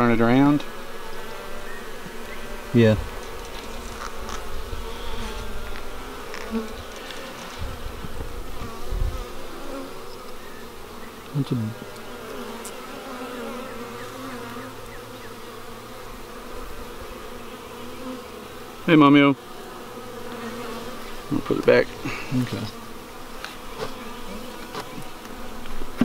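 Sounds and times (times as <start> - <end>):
honeybees buzzing: 0.0 - 26.0.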